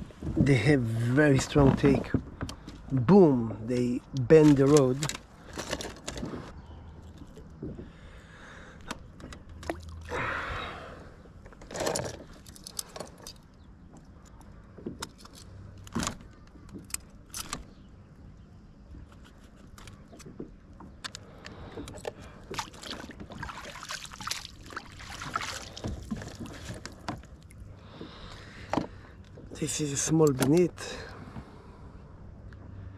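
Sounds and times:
fishing gear clicks and rattles: 3.7 - 7.6, 11.4 - 17.8, 19.0 - 27.6, 28.3 - 30.9.

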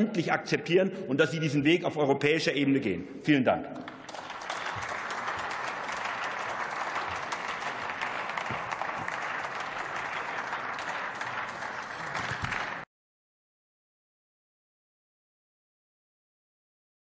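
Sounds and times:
crowd applauding: 3.8 - 12.9.

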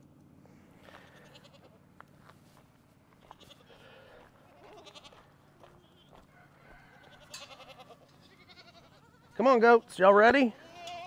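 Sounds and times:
goats bleating: 0.8 - 1.8, 3.2 - 11.0.

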